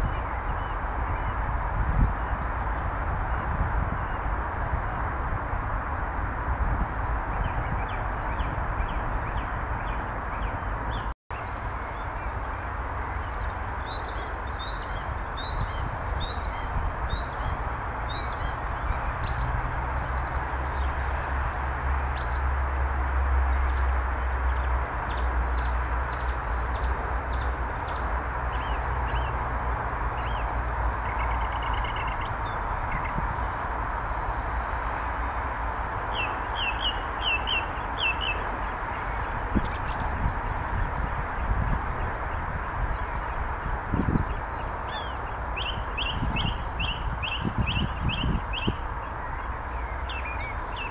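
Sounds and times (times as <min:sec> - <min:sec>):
birds chirping: 0:35.6 - 0:43.4, 0:44.0 - 0:50.9.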